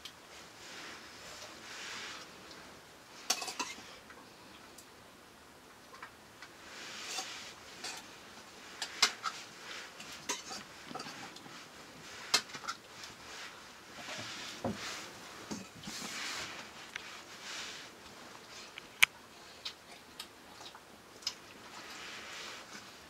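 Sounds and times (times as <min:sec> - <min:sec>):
spoon clinking on metal plates: 0:03.3 - 0:03.8.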